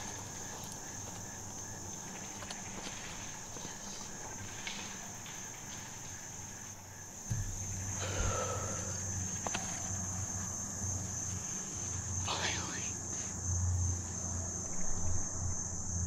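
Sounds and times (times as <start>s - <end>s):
insects chirping: 0.0s - 16.0s
faint knocks: 7.2s - 7.7s.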